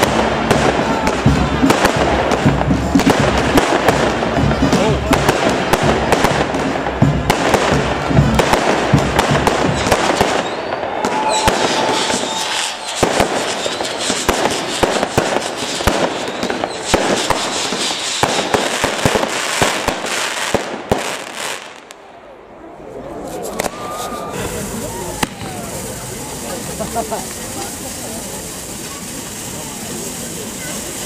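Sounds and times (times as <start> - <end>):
fireworks bangs: 0.0 - 22.1, 23.0 - 31.0
fireworks crackling: 0.0 - 31.0
rising firework whistle: 9.2 - 20.0, 23.3 - 31.0.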